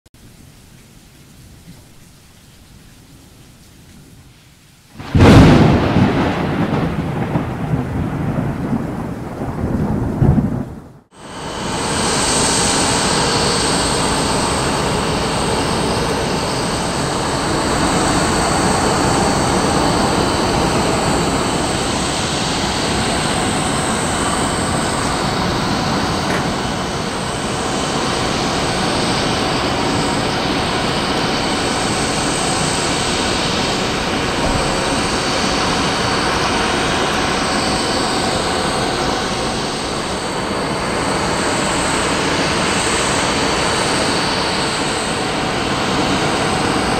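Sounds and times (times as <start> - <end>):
jet turbine rushing: 11.1 - 46.9
faint high whine: 11.2 - 46.9.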